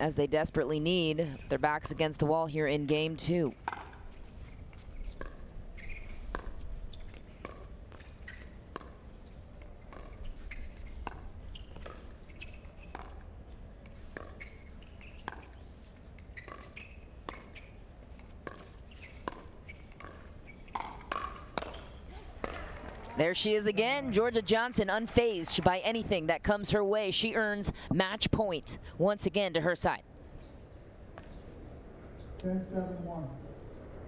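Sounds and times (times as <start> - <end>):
paddles popping against ball: 6.3 - 15.6, 16.2 - 23.1.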